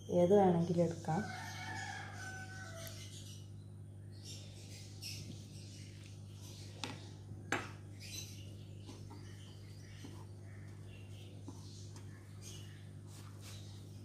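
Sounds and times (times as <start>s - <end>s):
steady low hum: 0.0s - 14.0s
bread crumbs rustling: 8.8s - 14.0s.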